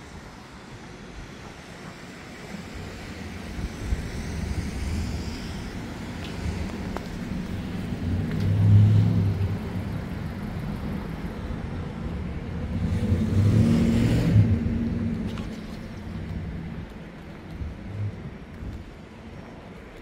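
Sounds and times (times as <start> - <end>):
cars driving past: 4.0 - 19.2.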